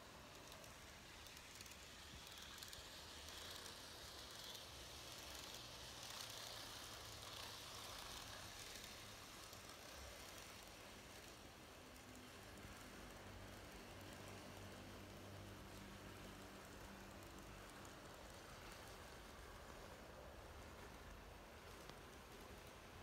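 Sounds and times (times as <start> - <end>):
model trains whirring: 0.0 - 23.0.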